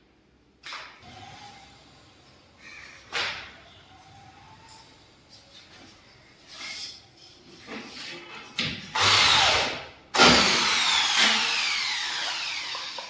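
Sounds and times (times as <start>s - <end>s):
electric drill drilling into steel: 9.0s - 13.0s.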